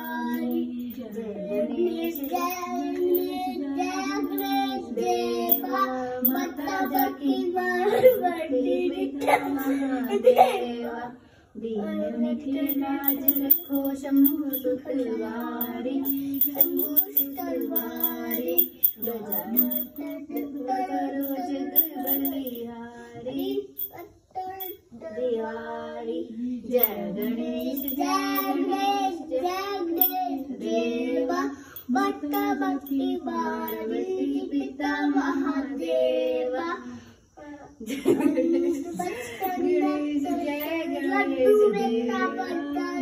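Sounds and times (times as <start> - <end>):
child singing devotional song: 0.0 - 13.1, 19.9 - 21.8, 22.5 - 43.0.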